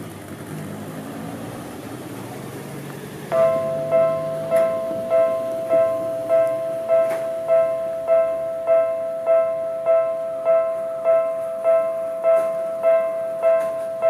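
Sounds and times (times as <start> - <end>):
level crossing warning bell: 3.3 - 14.0.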